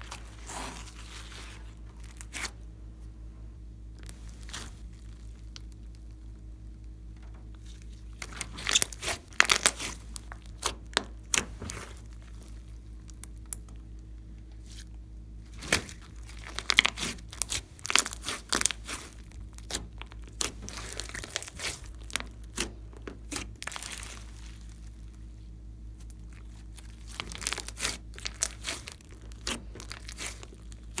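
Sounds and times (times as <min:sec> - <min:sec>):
slime crackling and popping: 0:04.0 - 0:14.1, 0:15.5 - 0:31.0.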